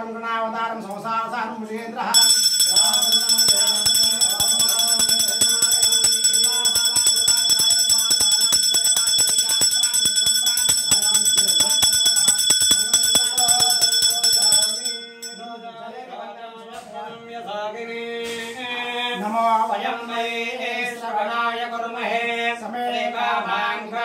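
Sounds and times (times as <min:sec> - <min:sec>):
temple bells clanging: 0:02.2 - 0:15.6.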